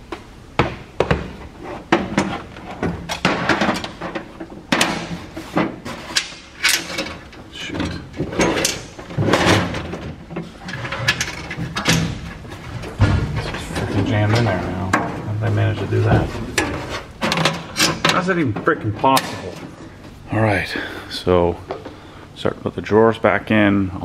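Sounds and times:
tool cabinet parts clattering: 1.0s - 19.9s.

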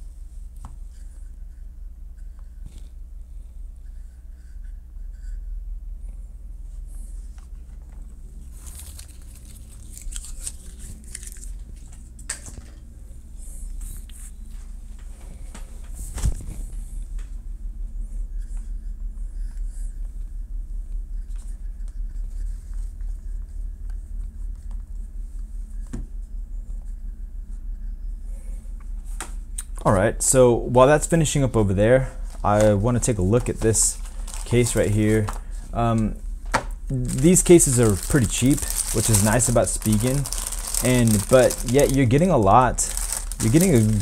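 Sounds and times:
steady low hum: 0.0s - 44.0s
plastic wrappers crinkling: 8.4s - 12.0s, 31.0s - 36.2s, 36.9s - 44.0s.

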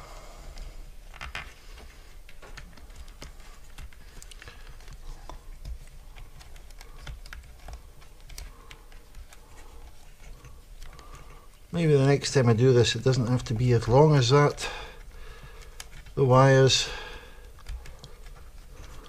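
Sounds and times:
small clicks and taps: 0.5s - 11.7s, 15.0s - 16.2s, 17.4s - 19.0s.

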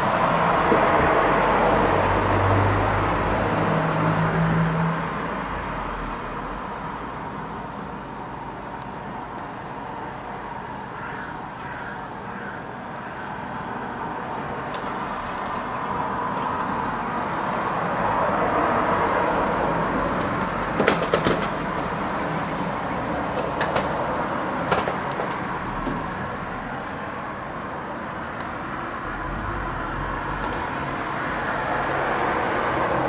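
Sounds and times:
distant traffic hum: 0.0s - 33.0s
pigeon wings clapping: 20.1s - 22.0s.

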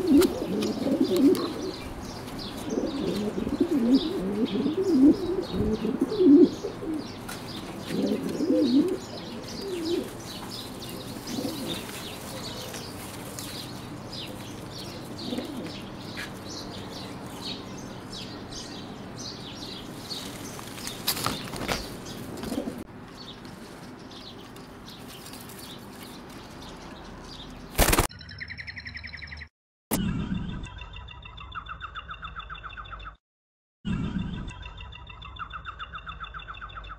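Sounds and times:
pigeons cooing: 0.0s - 18.6s, 21.2s - 22.9s
small birds chirping: 0.0s - 33.2s, 33.9s - 36.9s
wing flapping: 27.7s - 28.1s.

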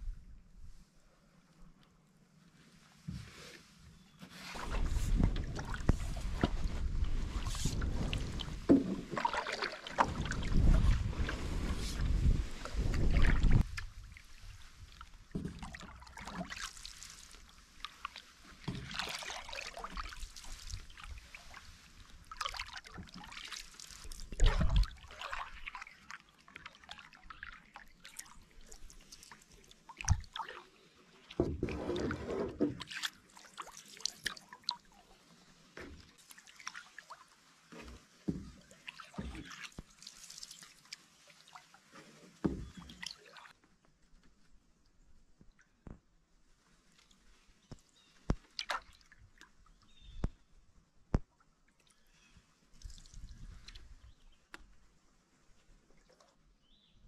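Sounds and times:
paddle swishing and splashing: 2.7s - 43.6s, 46.6s - 50.2s.

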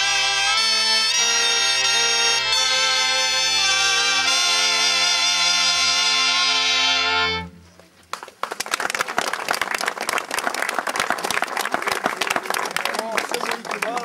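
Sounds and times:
reed and brass band playing: 0.0s - 7.7s
crowd applauding: 8.1s - 14.0s.

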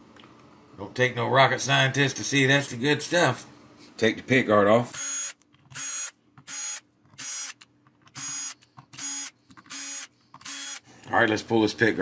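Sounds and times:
cordless drill motor whine: 4.9s - 10.8s.

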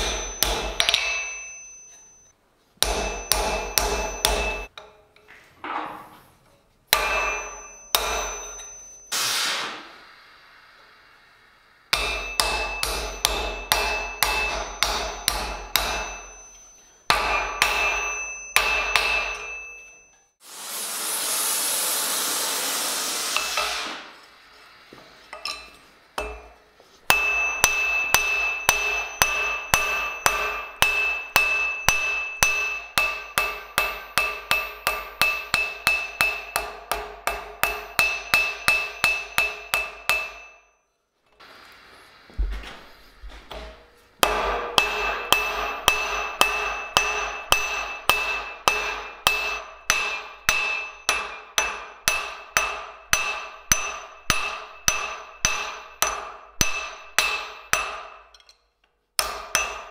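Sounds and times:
hammer striking steel on anvil: 0.0s - 5.2s, 6.9s - 9.7s, 11.9s - 20.4s, 23.4s - 24.1s, 25.3s - 40.9s, 43.5s - 59.9s
steady rushing hiss: 9.1s - 12.0s, 20.4s - 27.0s, 41.4s - 43.4s.

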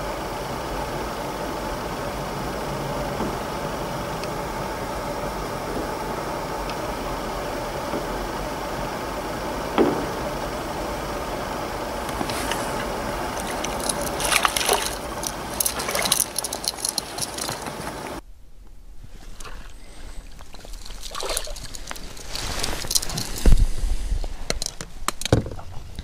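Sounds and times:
background hiss: 0.0s - 26.0s
fish splashing in water: 12.1s - 18.2s, 19.4s - 23.3s.

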